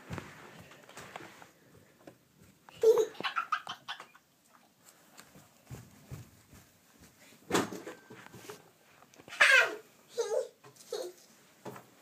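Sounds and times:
ferret scuffling on carpet: 4.8 - 7.4.

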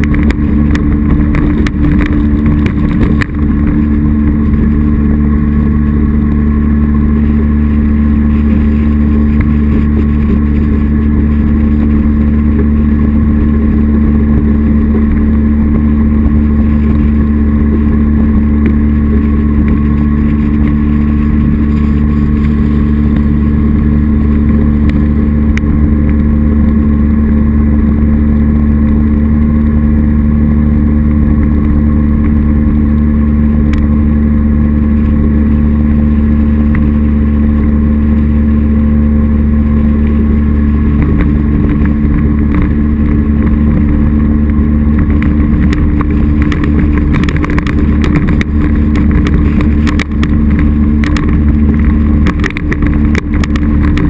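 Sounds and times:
jet boat engine hum: 0.0 - 54.0.

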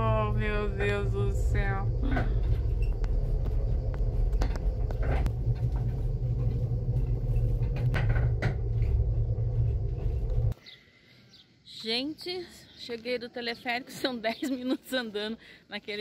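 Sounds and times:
cable car cabin rumble: 0.0 - 10.6.

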